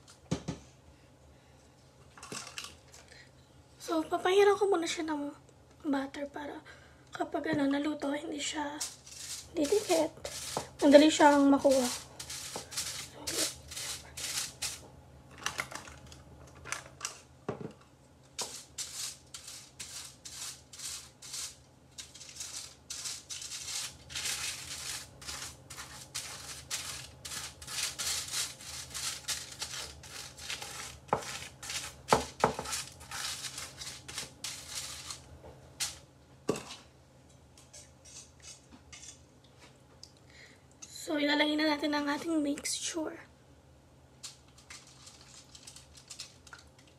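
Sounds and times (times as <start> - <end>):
pastry brush scraping on foil: 8.5 - 14.8, 18.4 - 36.0, 44.6 - 46.6.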